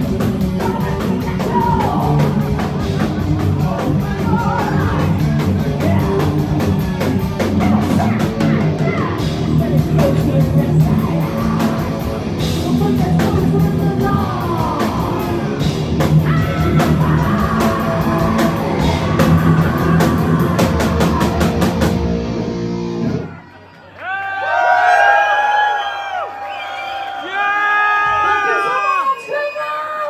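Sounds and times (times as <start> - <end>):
bass guitar: 0.0 - 23.3
distorted electric guitars: 0.0 - 23.3
drums: 0.0 - 24.2, 24.9 - 29.9.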